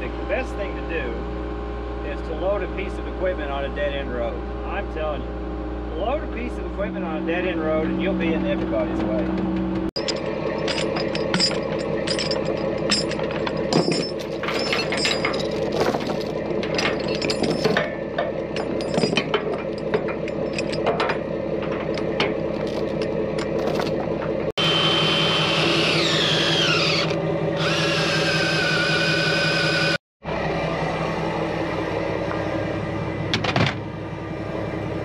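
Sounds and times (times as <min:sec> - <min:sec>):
engine whine falling in pitch: 0:00.0 - 0:35.0
heavy equipment engine running: 0:00.0 - 0:35.0
machinery clanks and squeaks: 0:05.9 - 0:24.5.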